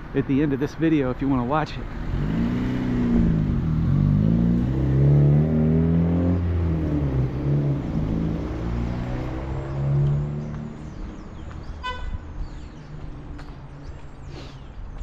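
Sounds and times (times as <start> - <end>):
car engine accelerating: 1.9 - 11.5.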